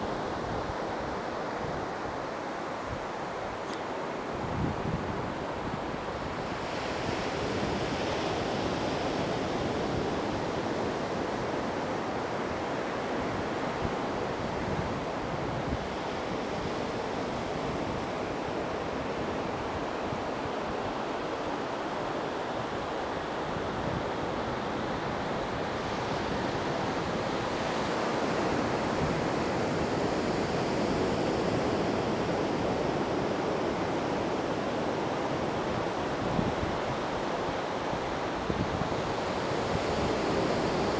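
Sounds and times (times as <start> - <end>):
surf rushing on beach: 0.0 - 40.9.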